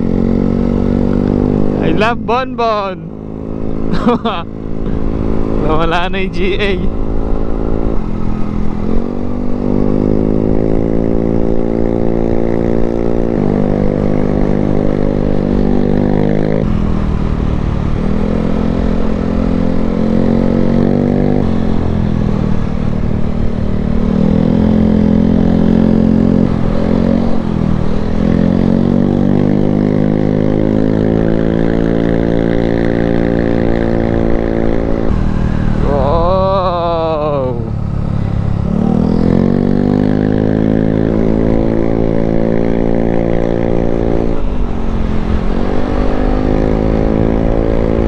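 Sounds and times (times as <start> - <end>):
scooter engine running: 34.9 - 41.0.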